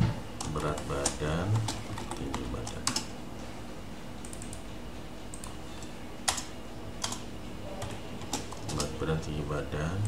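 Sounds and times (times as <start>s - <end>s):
low hum: 0.0s - 10.0s
computer keyboard keystrokes: 0.4s - 3.1s, 4.2s - 4.6s, 5.3s - 5.6s, 6.2s - 7.2s, 7.8s - 9.0s.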